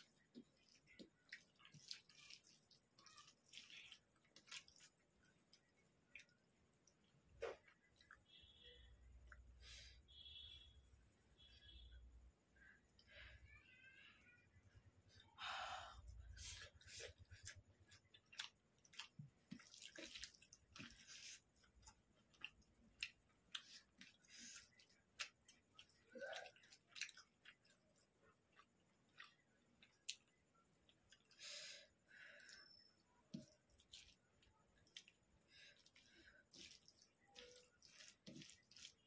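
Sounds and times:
fingers squishing food on metal plate: 0.0s - 8.3s, 32.4s - 39.0s
mouth clicks and smacks chewing: 0.0s - 8.3s, 16.6s - 31.4s.

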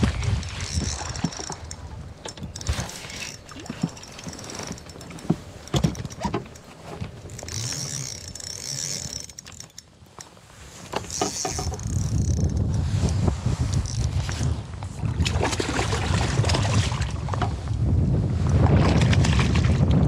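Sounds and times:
wind rumble on microphone: 0.0s - 8.3s, 10.9s - 20.0s
fishing reel gears whirring: 0.0s - 14.6s
rod and reel handling clicks: 0.1s - 14.6s.

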